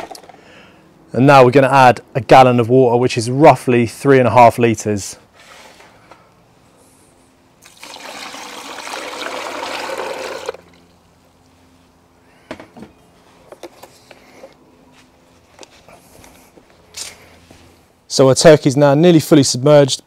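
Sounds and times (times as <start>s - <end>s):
water pouring into bucket: 7.6s - 10.7s.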